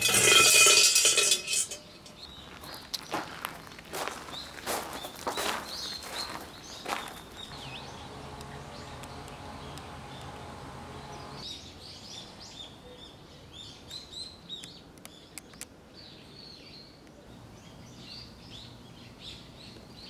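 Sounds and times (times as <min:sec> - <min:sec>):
small birds chirping: 0:01.9 - 0:20.0
low steady hum: 0:07.5 - 0:11.4
sharp clicks: 0:07.5 - 0:11.4.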